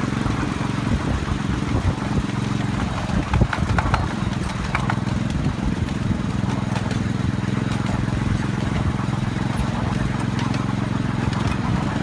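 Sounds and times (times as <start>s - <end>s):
small locomotive engine running: 0.0s - 12.0s
train clicks and rattles: 2.6s - 12.0s.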